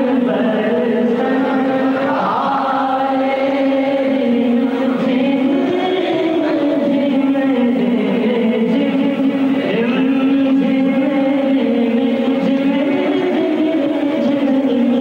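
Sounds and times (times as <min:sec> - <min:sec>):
man singing through pa system: 0:00.0 - 0:15.0.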